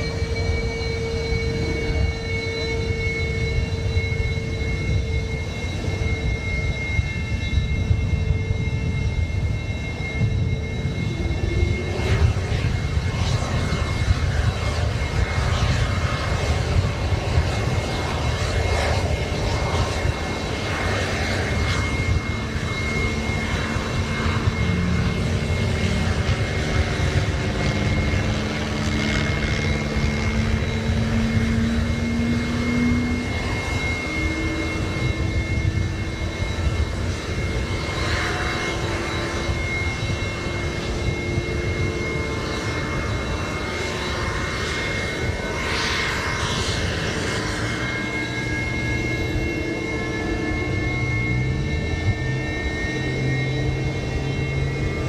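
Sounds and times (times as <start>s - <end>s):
jet engines running: 0.0s - 55.0s.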